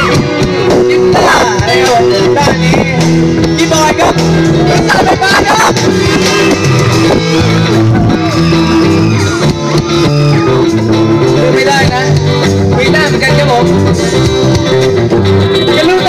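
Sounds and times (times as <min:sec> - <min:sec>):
bass: 0:00.0 - 0:16.0
drums: 0:00.0 - 0:16.0
electric guitars: 0:00.0 - 0:16.0.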